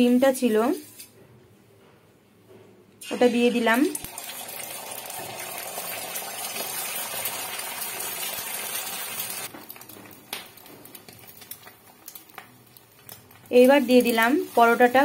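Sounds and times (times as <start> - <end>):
egg sizzling in hot oil: 3.1 - 15.0
oil crackling: 4.0 - 15.0.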